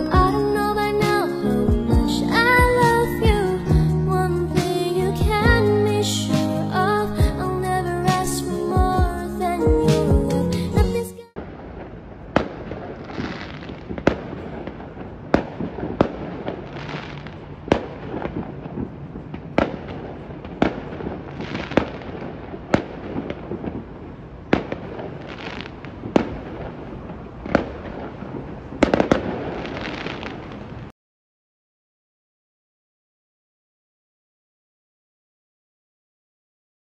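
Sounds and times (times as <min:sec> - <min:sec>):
crackling rumble of fireworks: 0:00.0 - 0:30.9
firework bangs: 0:11.4 - 0:30.9.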